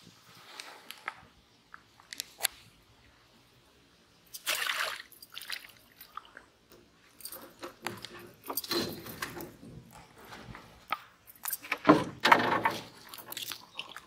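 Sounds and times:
knocks and thumps in wooden boat: 11.8 - 13.1.

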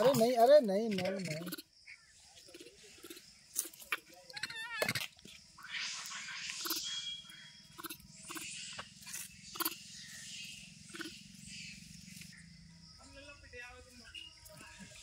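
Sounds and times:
monkeys giving harsh calls: 4.3 - 5.1.

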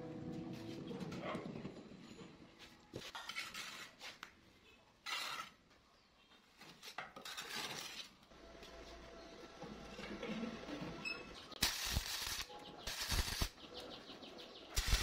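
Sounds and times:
mortar scraping: 2.9 - 4.3, 5.0 - 5.6, 6.6 - 8.2.

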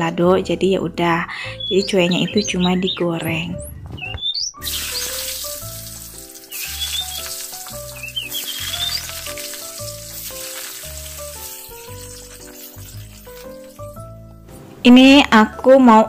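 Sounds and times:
potatoes sizzling in oil: 4.6 - 14.3.

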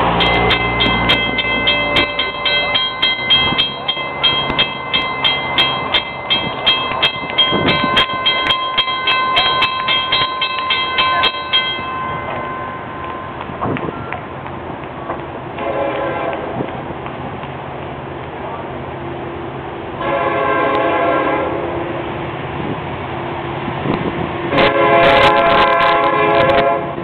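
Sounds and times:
crossing warning bells ringing: 0.0 - 14.5.

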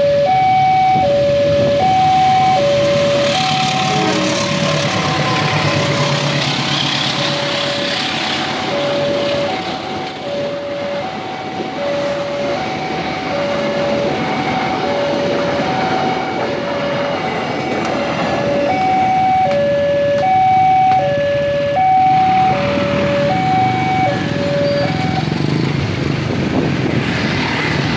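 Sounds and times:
two-note crossing alarm: 0.0 - 5.5, 18.5 - 25.4
train coaches rolling past: 1.2 - 27.9.

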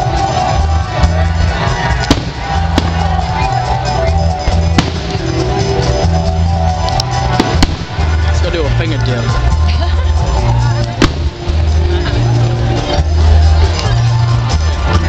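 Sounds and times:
amplified music with heavy bass beat: 0.0 - 15.0
firework bangs: 1.9 - 3.6, 4.4 - 5.6, 7.3 - 8.4, 11.0 - 11.7.

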